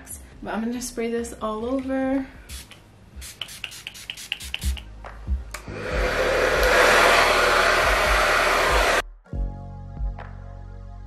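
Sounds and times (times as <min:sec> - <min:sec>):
spray bottle squirts: 0:02.5 - 0:04.8
hair dryer running: 0:05.6 - 0:09.0.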